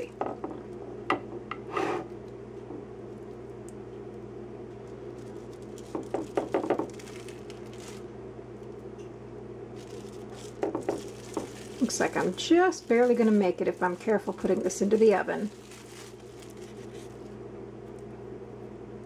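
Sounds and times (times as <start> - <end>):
steady low hum: 0.0 - 19.0
plastic wrap crinkling: 3.1 - 8.8, 9.7 - 18.1.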